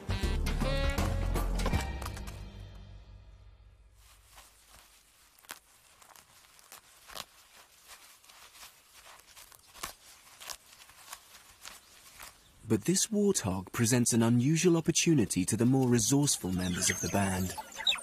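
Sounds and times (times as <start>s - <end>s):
warthog chewing grass: 4.2s - 12.6s.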